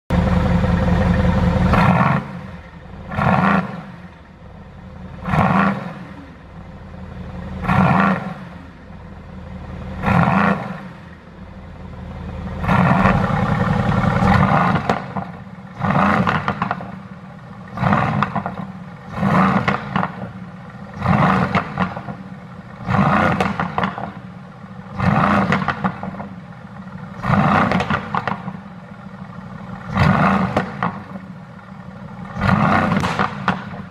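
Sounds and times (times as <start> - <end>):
car engine revving: 0.1 - 33.9
exhaust pops and crackles: 12.6 - 17.1, 17.7 - 20.4, 21.0 - 22.3, 22.9 - 24.2, 25.0 - 26.4, 27.2 - 28.7, 29.9 - 31.3, 32.3 - 33.9.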